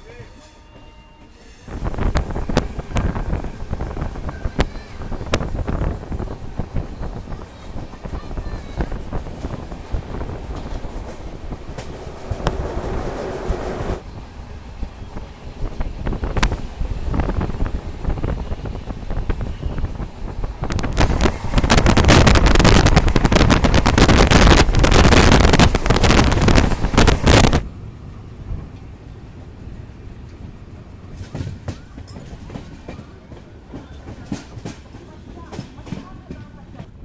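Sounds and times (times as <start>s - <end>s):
train rumble: 0.0s - 37.0s
train wheels on rails: 0.2s - 37.0s
wind buffeting microphone: 1.7s - 27.7s.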